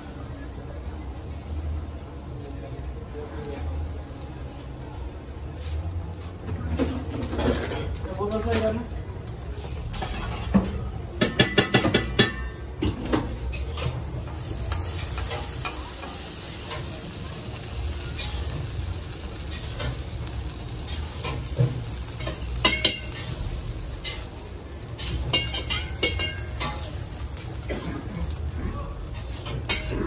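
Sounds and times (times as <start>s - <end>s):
batter sizzling on griddle: 0.0s - 30.0s
metal spatula clinking and scraping: 14.6s - 16.9s, 19.4s - 23.4s, 24.0s - 27.1s, 29.1s - 30.0s.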